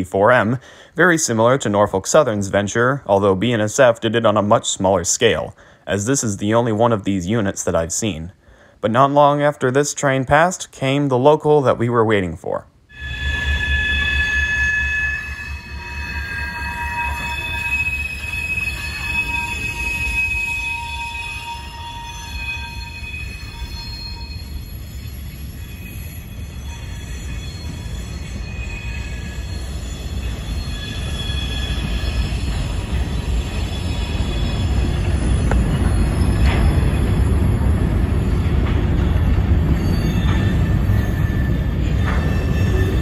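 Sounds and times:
high wheel squeals: 12.9 - 43.0
train wheels rumbling on rail: 13.2 - 43.0.

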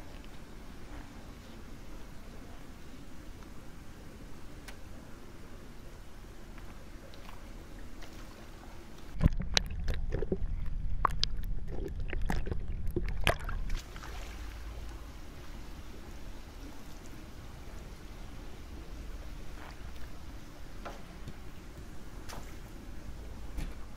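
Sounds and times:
faint pool hall hiss: 0.0 - 9.2, 13.7 - 23.9
muffled underwater bubbles: 6.7 - 20.8.

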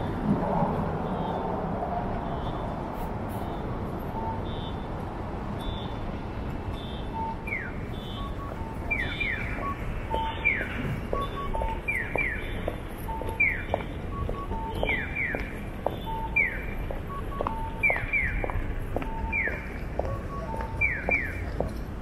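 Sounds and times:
street traffic: 0.0 - 22.0
bird-like electronic chirps: 7.5 - 12.5.

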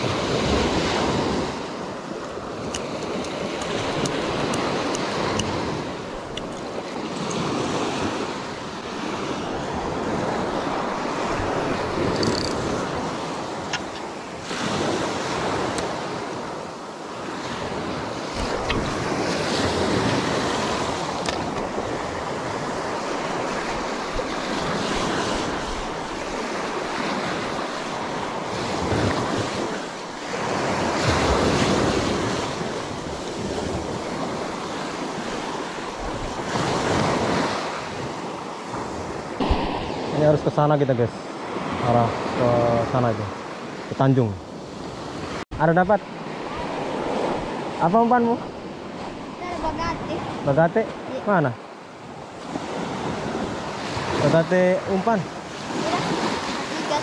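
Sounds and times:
waves washing up a pebble beach: 0.0 - 40.5, 52.3 - 57.0
wind rumbling on microphone: 0.0 - 51.2.

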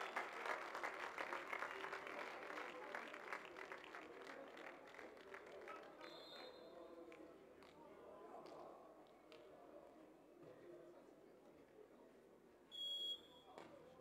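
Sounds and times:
spectators applauding: 0.0 - 6.3.

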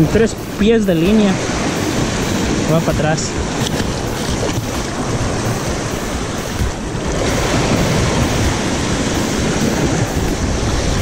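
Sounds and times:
surf washing over rocks: 0.0 - 11.0
wind buffeting microphone: 0.0 - 11.0.

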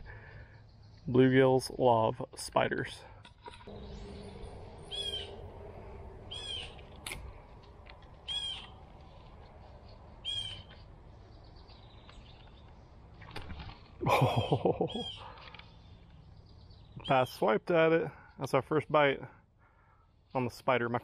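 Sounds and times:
bird calling: 3.6 - 7.4, 8.2 - 9.1, 9.8 - 13.4, 14.1 - 17.3
faint low rumble: 3.6 - 12.0.

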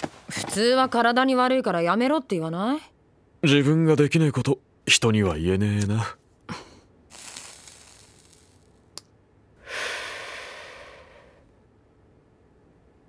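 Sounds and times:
lighter hiss: 7.1 - 9.1
breathy exhale of smoke: 9.6 - 11.5.

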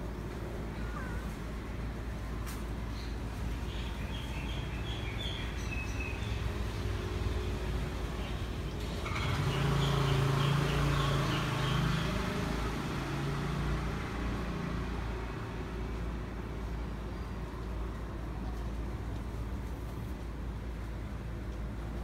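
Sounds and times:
traffic rumble: 0.0 - 22.0
vehicle passing: 6.1 - 16.1.

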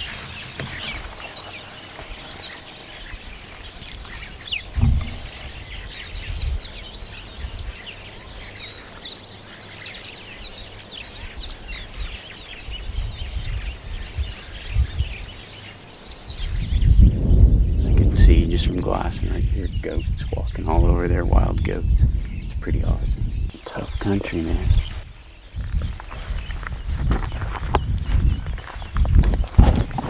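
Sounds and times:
low rumbling bumps: 0.0 - 7.8, 16.4 - 30.0
small birds chirping: 0.0 - 30.0.

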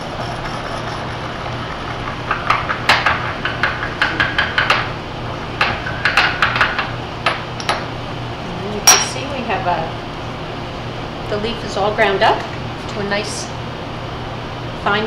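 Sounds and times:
pestle grinding in porcelain mortar: 0.0 - 5.0.

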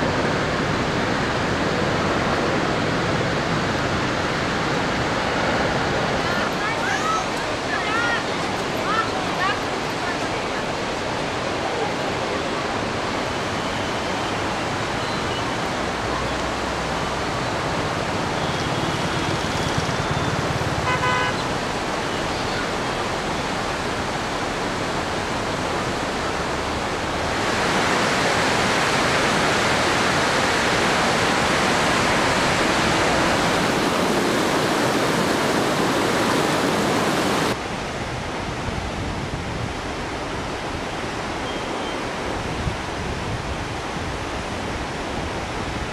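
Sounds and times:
river floodwater rushing: 0.0 - 45.9.

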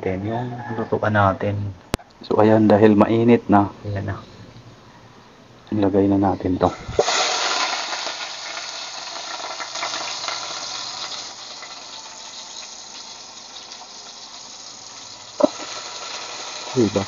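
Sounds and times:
onion sizzling in hot oil: 6.7 - 17.0.

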